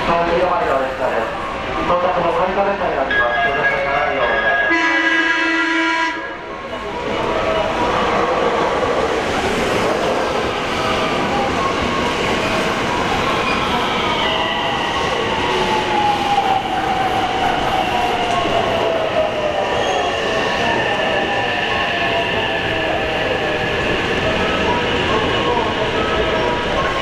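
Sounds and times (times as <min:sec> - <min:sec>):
train wheels on rails: 0:06.5 - 0:27.0.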